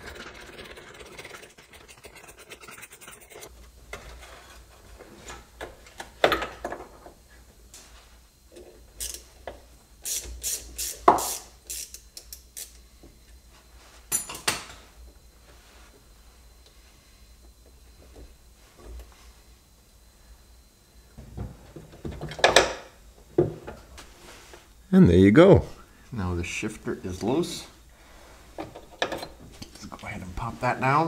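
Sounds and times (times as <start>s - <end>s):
tools scraping and rubbing: 0.0s - 3.5s.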